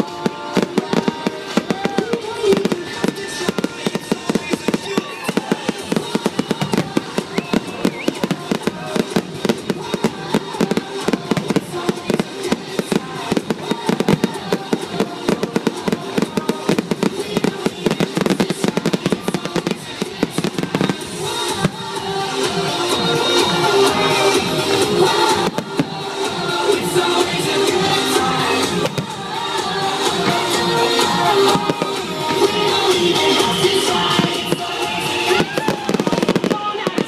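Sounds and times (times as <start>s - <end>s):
fireworks bangs and crackling: 0.0s - 37.0s
music: 0.0s - 37.0s.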